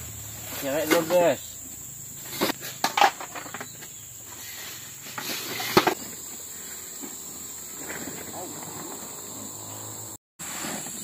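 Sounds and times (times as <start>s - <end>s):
insects chirring: 0.0s - 11.0s
knocks and clatters: 2.3s - 3.9s.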